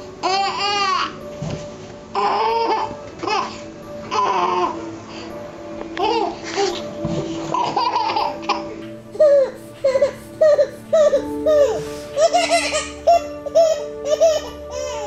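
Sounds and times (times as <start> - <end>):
background music with held notes: 0.0 - 15.0
baby babbling and laughing: 7.6 - 15.0.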